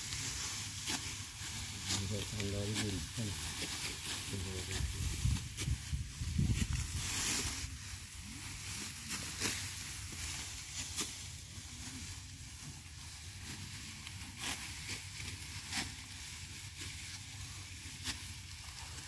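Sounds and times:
sickles cutting rice stalks: 0.0s - 19.0s.

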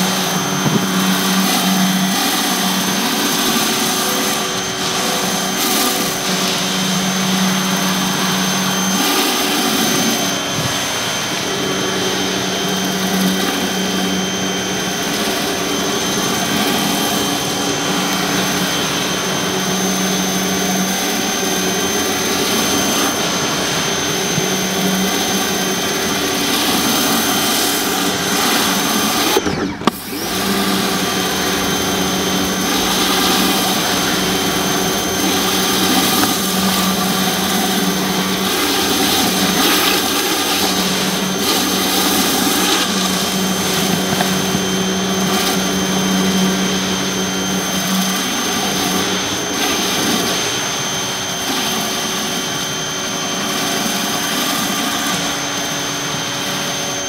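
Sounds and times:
pressure washer whine: 0.0s - 57.0s
water spray hissing on concrete: 32.6s - 44.5s.

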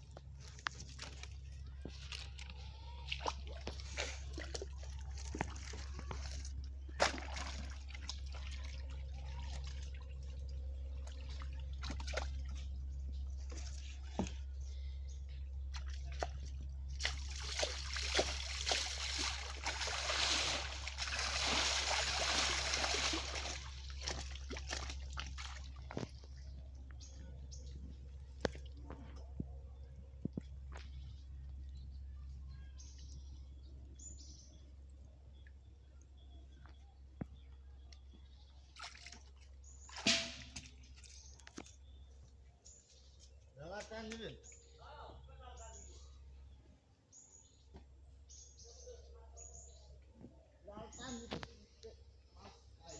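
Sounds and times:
water splashing and sloshing: 0.0s - 31.8s, 35.3s - 44.3s.

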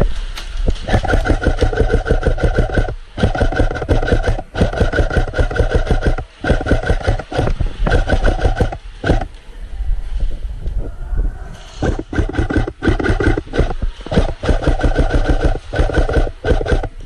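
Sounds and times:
airsoft gun firing bursts: 0.8s - 9.3s, 11.8s - 17.0s
gun motor whine: 0.9s - 9.3s, 11.8s - 16.9s.

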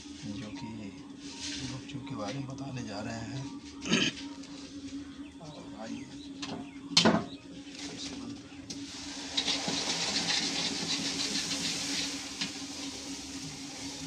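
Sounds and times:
food deep-frying in oil: 8.7s - 14.0s.

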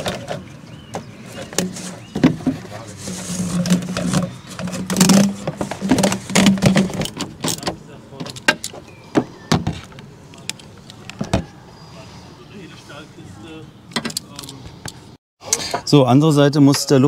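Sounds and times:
plastic hose scraping and creaking: 0.0s - 11.6s.

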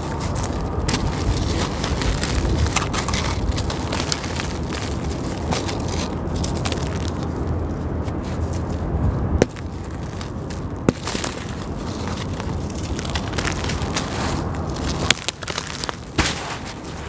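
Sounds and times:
crumbs pattering down: 0.0s - 17.0s
gritty crunching of cement chunks: 0.0s - 17.0s
sharp cracks of pieces breaking: 14.8s - 17.0s.

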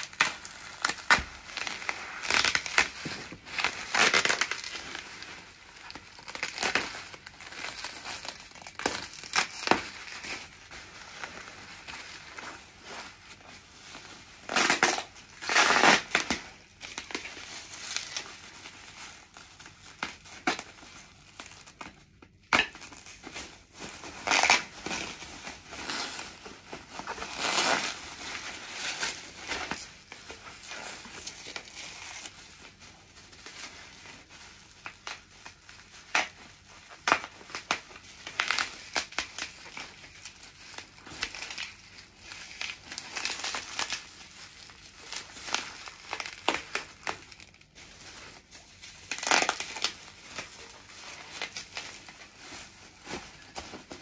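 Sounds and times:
packing wrap crinkling: 0.0s - 54.0s.

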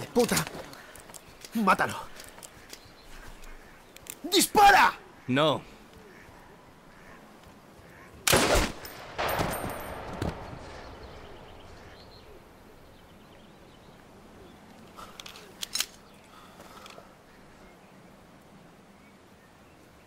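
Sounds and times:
loud rifle shots with echo: 8.3s - 12.6s
sharp cracks: 8.3s - 12.7s.

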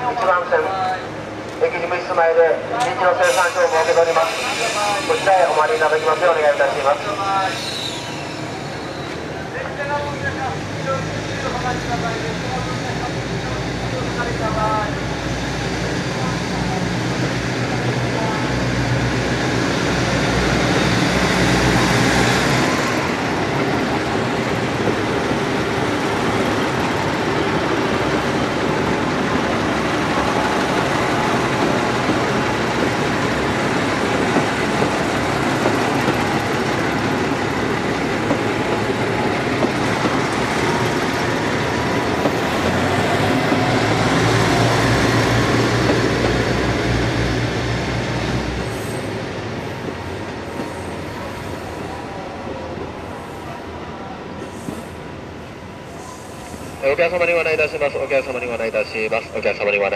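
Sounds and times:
diesel train passing: 0.0s - 59.9s.

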